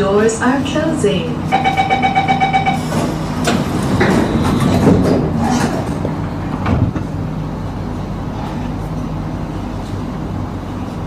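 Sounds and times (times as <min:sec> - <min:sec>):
train running gear hum: 0:00.0 - 0:11.0
train door warning tone: 0:01.3 - 0:05.2
carriage doors sliding shut: 0:02.8 - 0:07.0.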